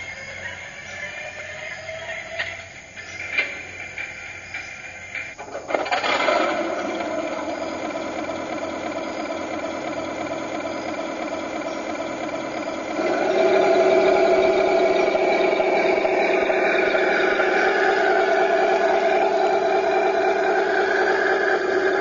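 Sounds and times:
simulated tank engine through speaker: 5.6 - 22.0.

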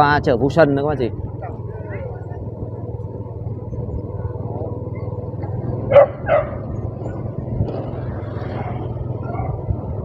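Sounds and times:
low vehicle drone: 0.0 - 10.0
dog barking: 5.9 - 6.7, 9.2 - 9.7.

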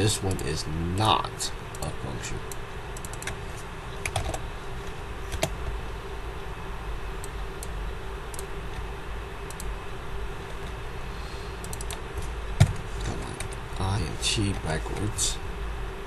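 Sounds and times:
steady low hum: 0.0 - 16.0
computer keystrokes and clicks: 2.5 - 3.4, 7.2 - 8.5, 9.4 - 9.7, 11.6 - 12.0.

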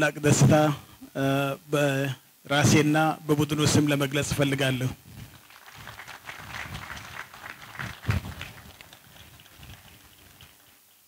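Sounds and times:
audience applause: 5.3 - 10.8.

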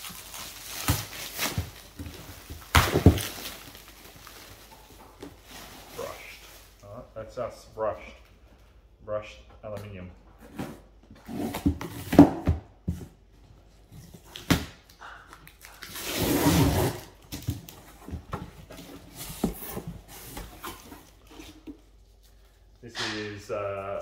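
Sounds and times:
packing tape ripping: 0.0 - 2.0.

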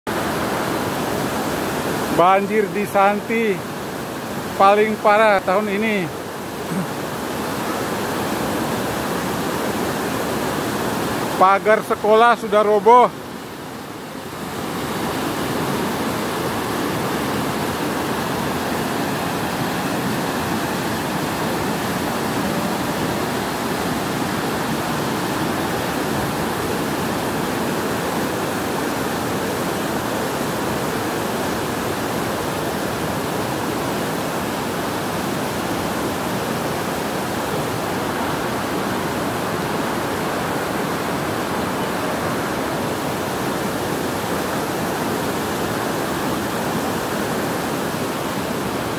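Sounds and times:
floodwater rushing: 0.1 - 48.9.

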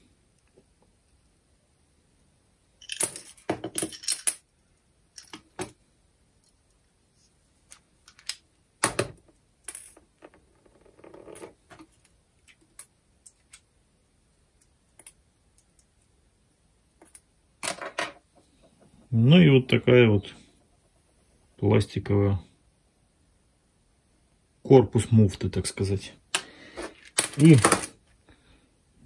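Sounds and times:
metal parts clinking: 2.8 - 4.4, 27.0 - 28.0.

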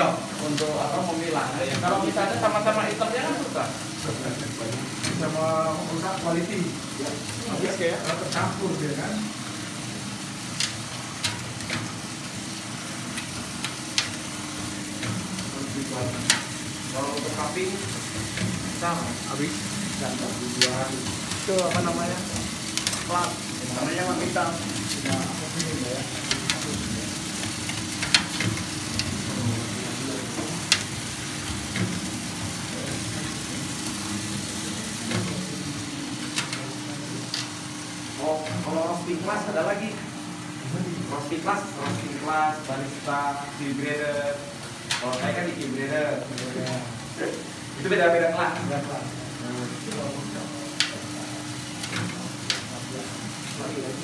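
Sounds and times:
coffee beans rustling in tray: 0.1 - 40.0.

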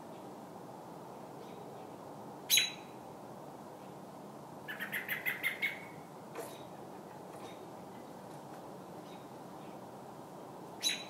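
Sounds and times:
robin distress calls: 2.5 - 2.9, 4.7 - 6.6, 10.8 - 11.0.

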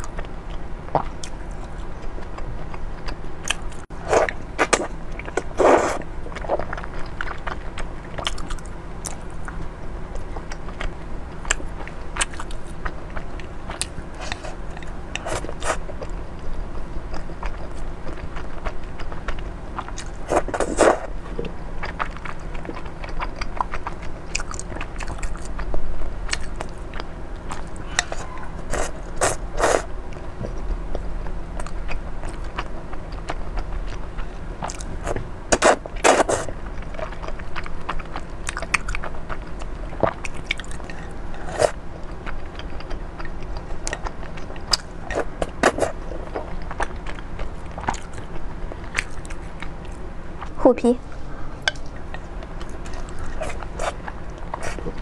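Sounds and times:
loud slurps: 5.6 - 6.0
chewing noodles: 10.2 - 50.6, 51.7 - 55.0.

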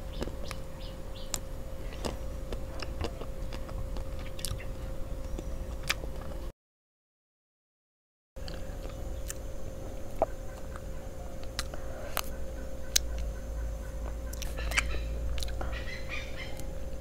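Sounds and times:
faint steady hum: 0.0 - 6.5, 8.4 - 17.0
mouth clicks and lip smacks: 1.3 - 4.6, 5.8 - 6.3, 14.3 - 15.6.

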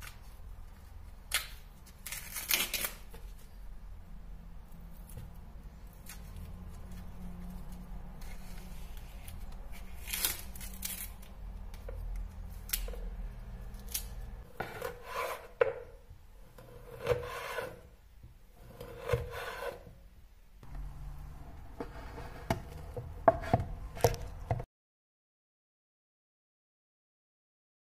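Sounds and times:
low steady hum: 20.0 - 24.6.

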